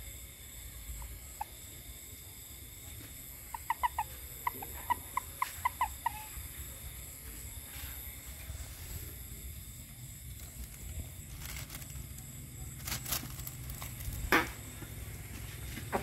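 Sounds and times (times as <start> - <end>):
frog clucking: 0.7 - 7.3.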